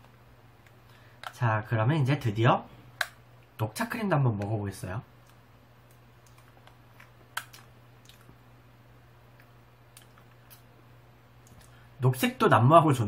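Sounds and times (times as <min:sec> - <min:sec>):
low steady hum: 0:00.0 - 0:13.0
faint chewing: 0:05.2 - 0:08.4, 0:09.3 - 0:10.8.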